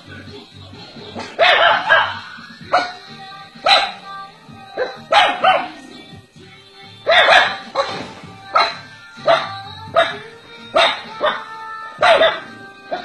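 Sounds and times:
small dog barking: 1.2s - 2.9s, 3.6s - 4.0s, 4.8s - 5.8s, 7.1s - 7.9s, 8.5s - 10.2s, 10.8s - 13.0s.

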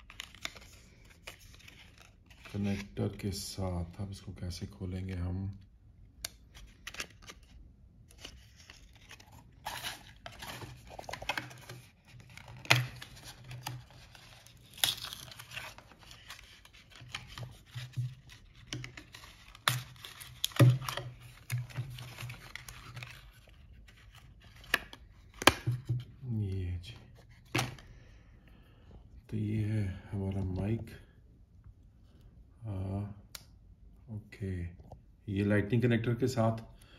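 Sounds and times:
cardboard rustling and tearing: 8.1s - 25.7s.

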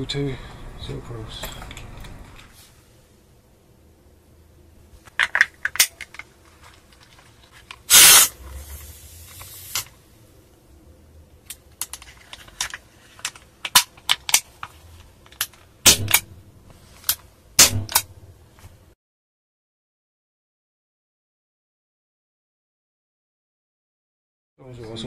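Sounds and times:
gas hissing: 7.9s - 10.0s.

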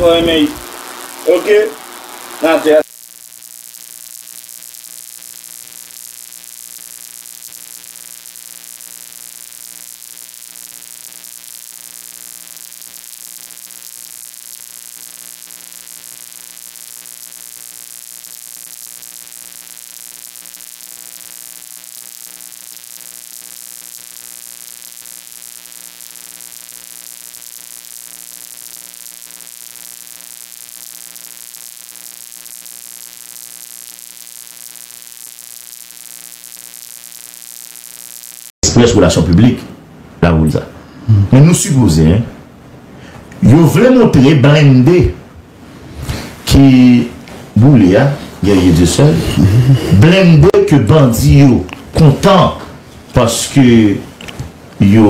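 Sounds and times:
electrical mains hum: 0.0s - 55.0s
static hiss: 0.0s - 55.0s.

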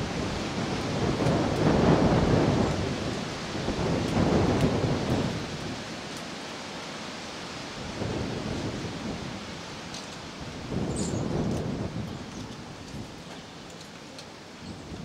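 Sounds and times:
wind buffeting microphone: 0.0s - 5.9s, 7.8s - 13.4s.

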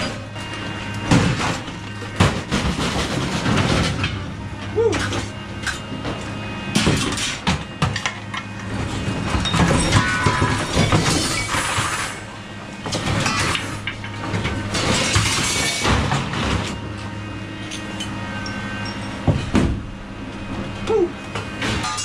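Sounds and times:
low engine hum: 0.0s - 10.6s
scrap metal clanking: 6.7s - 12.3s, 12.9s - 16.8s, 21.4s - 22.0s.

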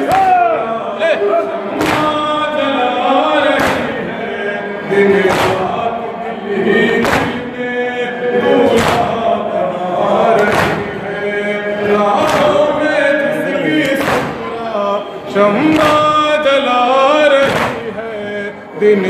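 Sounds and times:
men chanting in a group: 0.0s - 19.0s
hands striking chests: 7.0s - 7.4s, 10.4s - 11.0s, 12.2s - 12.7s, 13.8s - 14.4s, 15.7s - 16.1s, 17.4s - 17.9s.

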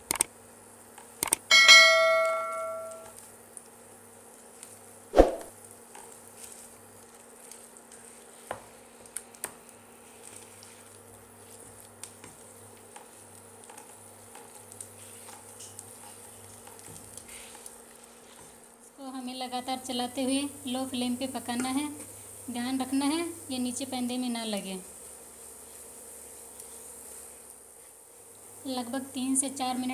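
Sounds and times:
click: 0.1s - 0.3s
light sizzling: 0.9s - 29.9s
bell chime: 1.5s - 3.1s.

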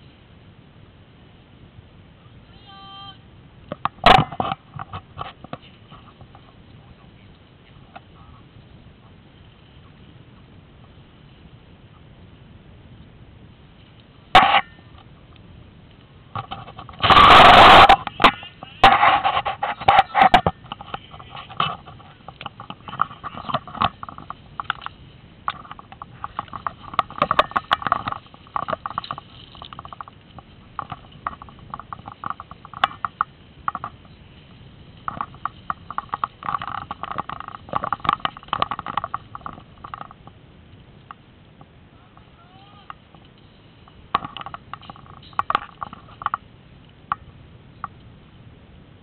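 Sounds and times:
grass and leaves rustling: 0.0s - 49.0s
gear clicks and knocks: 16.3s - 40.4s, 42.9s - 46.4s.

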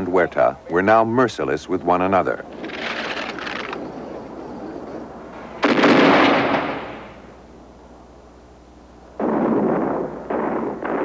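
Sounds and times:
gunshots rumbling away: 2.5s - 7.3s, 9.2s - 11.0s.

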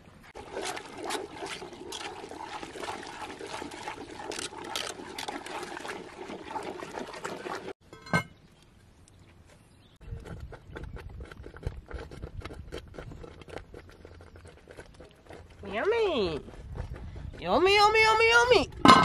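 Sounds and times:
stick stirring porridge in pot: 0.3s - 7.8s, 10.0s - 18.2s
metal lid clanking onto pot: 7.9s - 8.3s.

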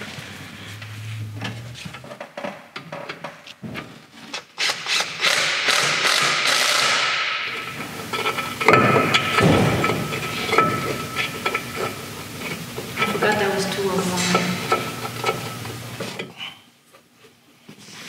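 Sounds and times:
hand tool knocking and clattering: 7.6s - 13.3s.

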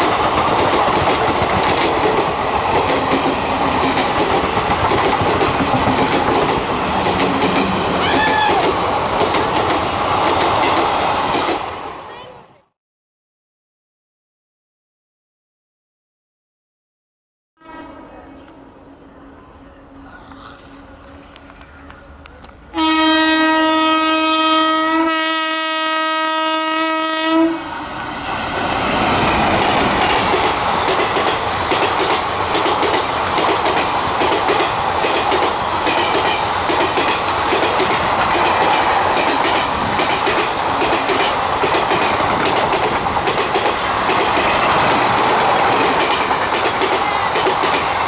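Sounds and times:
train wheels clattering: 0.0s - 11.7s, 28.7s - 48.0s
locomotive horn blast: 17.6s - 19.0s, 22.7s - 27.8s.

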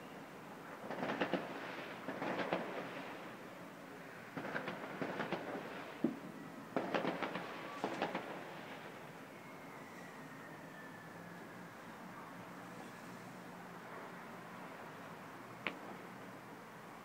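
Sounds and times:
distant fireworks crackling bangs: 0.7s - 3.4s, 4.2s - 9.1s
faint falling whistle: 9.3s - 11.8s.

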